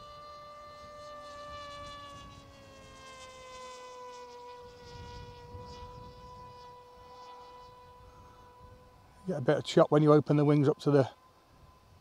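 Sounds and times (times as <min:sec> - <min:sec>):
electric motor and propeller whining: 0:00.0 - 0:12.0
low wind noise: 0:04.6 - 0:12.0.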